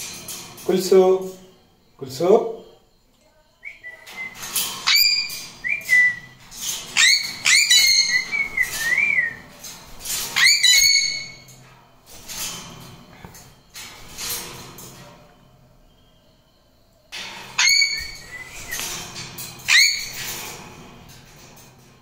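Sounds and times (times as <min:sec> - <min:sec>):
parrots whistling: 0:03.7 - 0:06.4, 0:07.0 - 0:09.4, 0:10.4 - 0:11.4, 0:17.6 - 0:18.9, 0:19.7 - 0:20.2
rasping parrot calls: 0:07.0 - 0:08.5, 0:10.4 - 0:11.4, 0:17.6 - 0:18.8.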